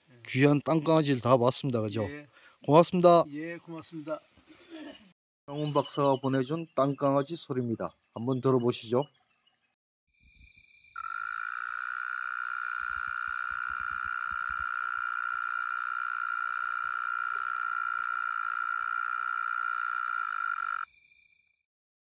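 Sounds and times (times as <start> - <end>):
mole cricket purring trill: 10.2 - 21.6.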